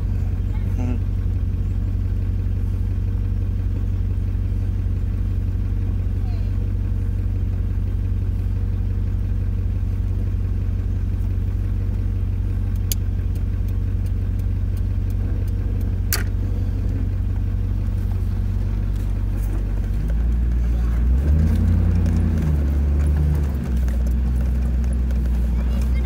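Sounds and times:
car engine running: 0:00.0 - 0:26.0.

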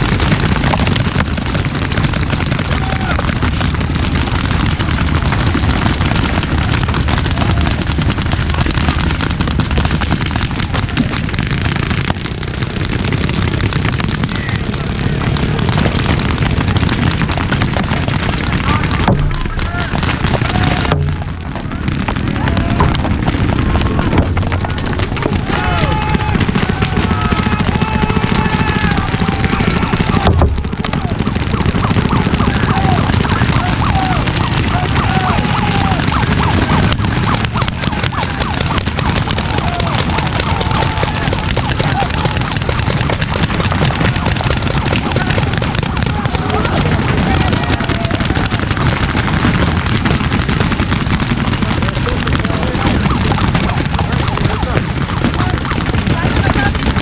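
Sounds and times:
steady low rumble: 0:00.0 - 0:43.9
paintball markers firing: 0:00.0 - 0:57.0
players shouting: 0:00.0 - 0:57.0
loud bang: 0:03.7 - 0:57.0.

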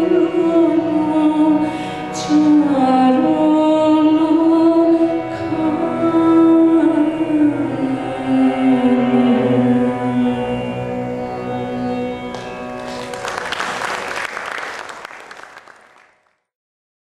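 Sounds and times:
harmonium chord: 0:00.0 - 0:16.0
audience applause: 0:12.3 - 0:16.4.

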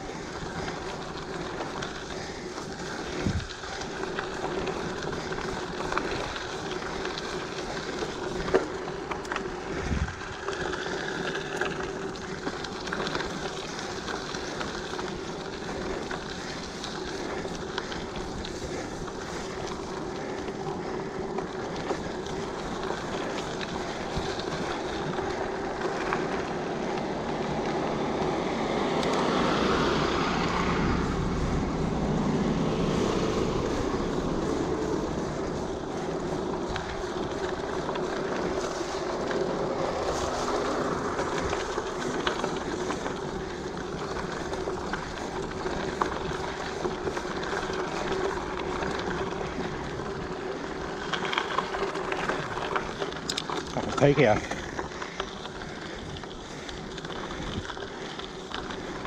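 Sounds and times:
bike tyres on dirt: 0:00.0 - 0:59.0
wind on microphone: 0:03.1 - 0:03.5, 0:09.8 - 0:10.4.

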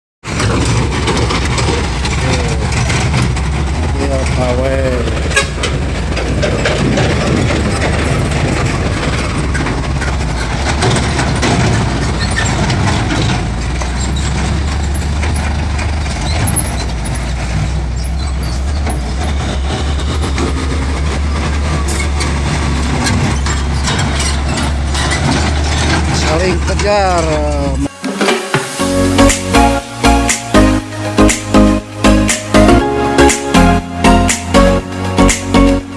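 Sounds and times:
dump truck engine rumble: 0:00.2 - 0:27.9, 0:28.6 - 0:35.9
truck knocks and rattles: 0:00.2 - 0:27.9.

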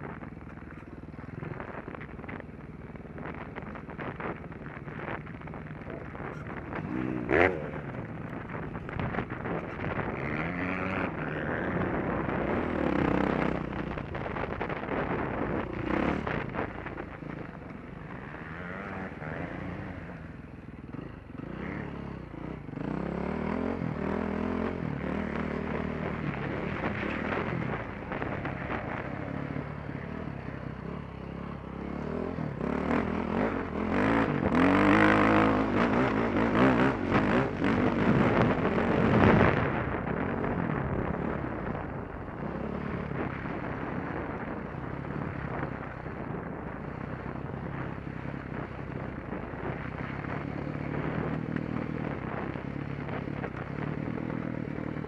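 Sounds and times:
dirt bike engine revving: 0:05.9 - 0:14.0, 0:21.0 - 0:40.4.

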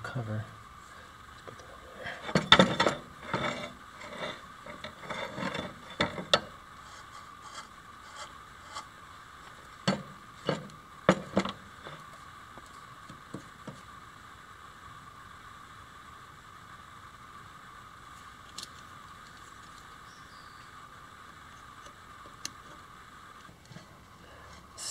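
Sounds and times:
metallic clicks and scrapes: 0:02.2 - 0:12.1.

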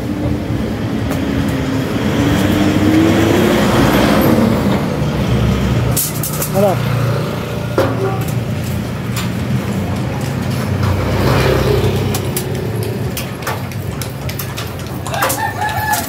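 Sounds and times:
vehicle passing: 0:00.0 - 0:16.0.

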